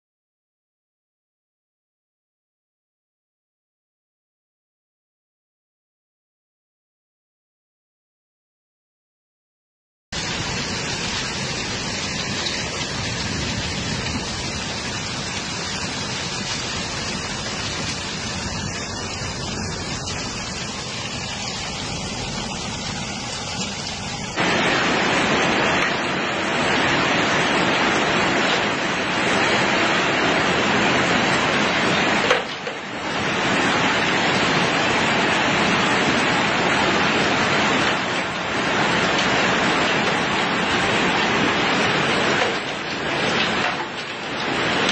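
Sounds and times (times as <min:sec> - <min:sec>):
hail and rain pelting: 0:10.2 - 0:44.9.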